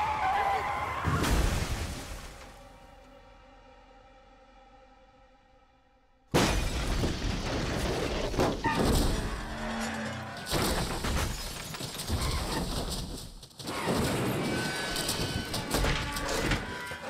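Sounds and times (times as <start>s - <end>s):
music: 2.5s - 6.3s
vehicle crash with shattering: 6.3s - 17.0s.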